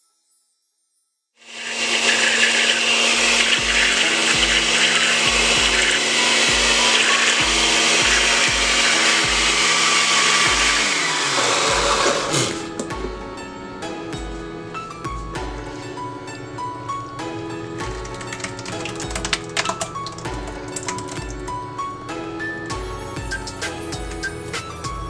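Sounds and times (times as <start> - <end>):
blender running: 1.4 - 12.8
background music: 1.5 - 25.0.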